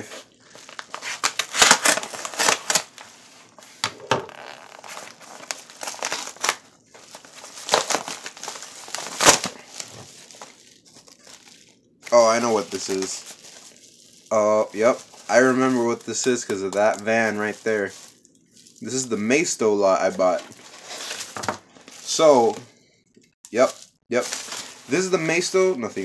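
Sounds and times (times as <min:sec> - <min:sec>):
packets rustling: 0:00.0 - 0:19.4, 0:20.1 - 0:22.6, 0:23.5 - 0:26.0
bubble wrap crinkling: 0:00.0 - 0:22.6, 0:23.5 - 0:26.0
padded mailer tearing: 0:00.5 - 0:03.1, 0:04.3 - 0:11.2, 0:12.1 - 0:13.4.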